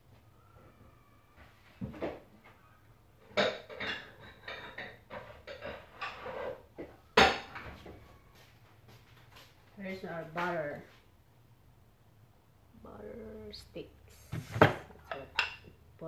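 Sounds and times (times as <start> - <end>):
dishes clattering: 3.2 - 7.8, 14.4 - 15.7.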